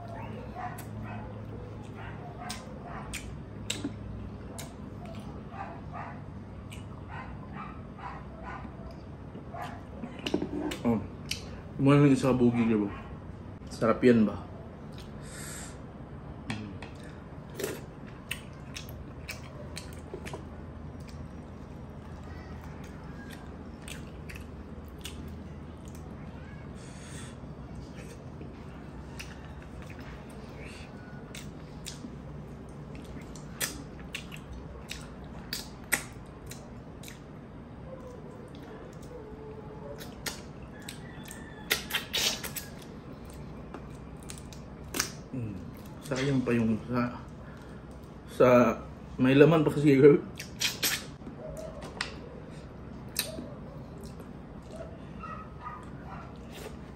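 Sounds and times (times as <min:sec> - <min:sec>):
wet mouth clicks and smacks: 0:02.4 - 0:05.3, 0:31.3 - 0:37.3, 0:40.0 - 0:46.2, 0:50.3 - 0:52.2, 0:53.1 - 0:54.8
slurp: 0:41.6 - 0:42.8, 0:50.4 - 0:51.2.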